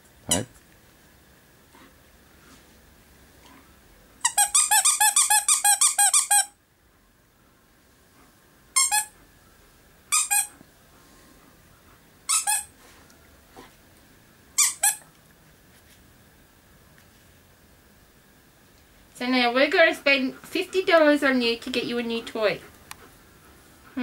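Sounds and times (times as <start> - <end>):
dog toy squeaking: 0.3 - 0.5, 4.2 - 6.6, 8.8 - 9.1, 10.1 - 10.5, 12.3 - 12.7, 14.6 - 15.0.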